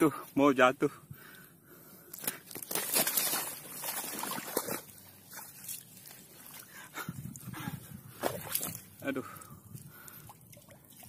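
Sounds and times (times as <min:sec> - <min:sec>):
fish flapping and thrashing: 0:02.1 - 0:06.7, 0:08.1 - 0:11.0
rustling and slapping: 0:02.2 - 0:06.6.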